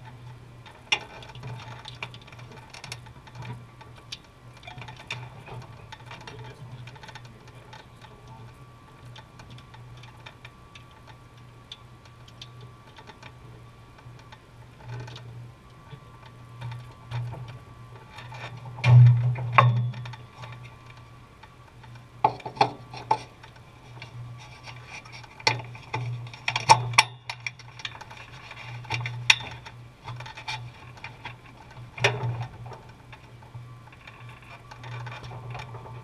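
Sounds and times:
low steady hum: 0:00.0 - 0:36.0
sharp clicks and knocks: 0:16.2 - 0:33.3.

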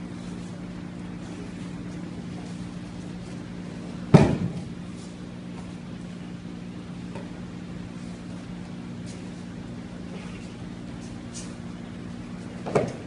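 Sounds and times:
steady low hum: 0:00.0 - 0:13.0
body slapping thud on mat: 0:04.1 - 0:04.8.

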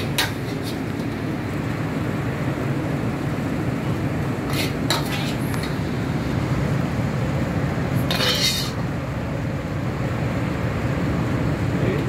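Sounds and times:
ladle scraping a ceramic plate: 0:00.0 - 0:00.9, 0:04.5 - 0:05.5, 0:08.1 - 0:08.8
kitchen ventilation rumble: 0:00.0 - 0:12.0.

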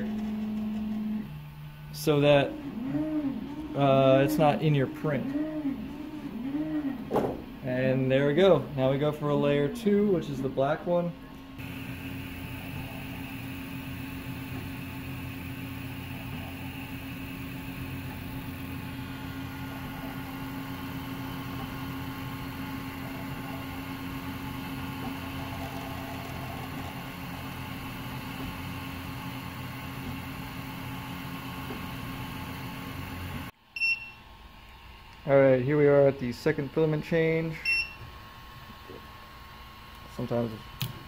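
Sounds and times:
printer fans and motors humming: 0:00.0 - 0:33.6, 0:34.2 - 0:41.0
short high beep: 0:33.8 - 0:34.2.

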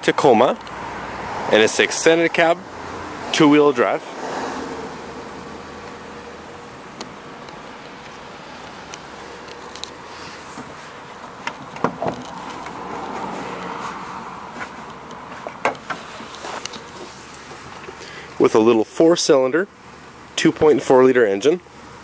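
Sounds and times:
steady outdoor hum: 0:00.0 - 0:22.0
sharp clicks and knocks: 0:08.9 - 0:12.8, 0:14.6 - 0:18.0.

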